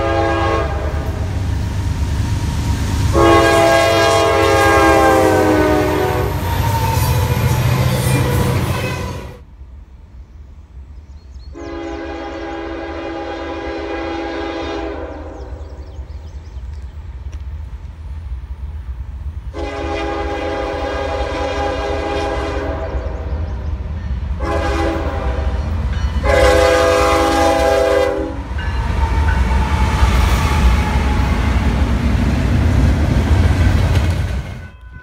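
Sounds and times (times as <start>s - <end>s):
locomotive air horn: 0.0s - 1.3s, 3.1s - 9.4s, 11.6s - 15.6s, 19.5s - 23.2s, 24.4s - 31.8s, 34.5s - 35.0s
train engines and wheels rumbling: 0.0s - 35.0s.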